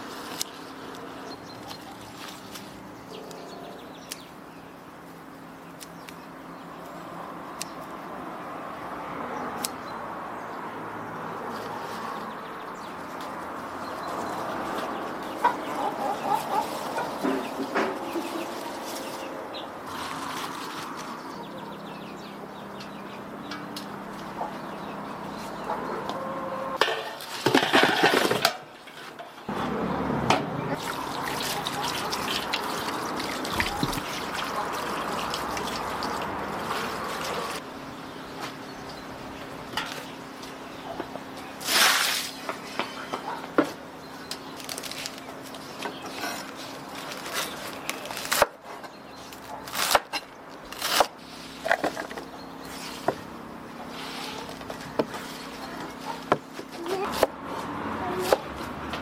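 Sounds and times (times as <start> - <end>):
chickens clucking: 14.4 - 19.4, 22.8 - 27.2, 30.7 - 37.6, 53.8 - 57.2
water splashing onto leaves: 30.8 - 37.6.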